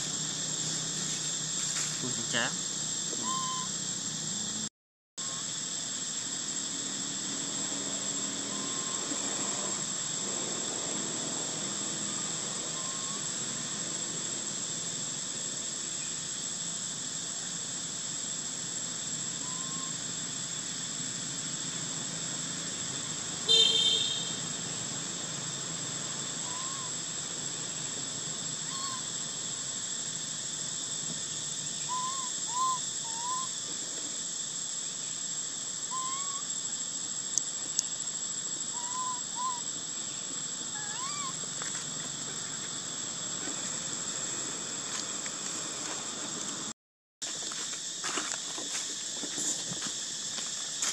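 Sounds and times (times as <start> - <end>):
insects droning: 0.0 - 50.9
rising whistled calls: 3.2 - 3.8, 12.7 - 13.2, 19.4 - 20.0, 26.4 - 27.0, 28.6 - 29.1, 31.6 - 33.5, 35.9 - 36.5, 38.7 - 39.7.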